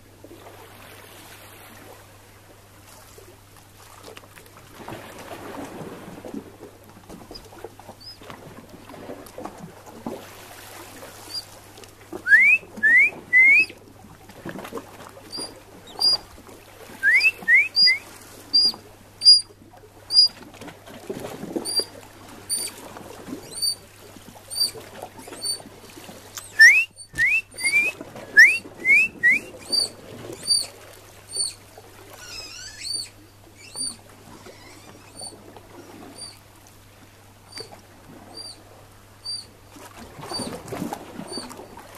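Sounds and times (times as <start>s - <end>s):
otters whistling: 8.0s - 8.2s, 11.3s - 11.5s, 12.3s - 13.8s, 15.3s - 16.2s, 17.0s - 19.5s, 20.1s - 20.4s, 21.7s - 21.9s, 22.5s - 22.7s, 23.4s - 23.8s, 24.5s - 25.6s, 26.4s - 30.7s, 31.3s - 31.6s, 32.2s - 34.0s, 34.6s - 35.4s, 36.2s - 36.4s, 37.5s - 37.7s, 38.3s - 38.6s, 39.2s - 39.5s, 40.3s - 40.6s, 41.3s - 41.5s
thin high peeps: 15.3s - 16.2s, 17.1s - 18.0s, 18.6s - 19.5s, 20.1s - 20.3s, 32.2s - 34.0s, 36.2s - 36.4s, 39.2s - 39.5s.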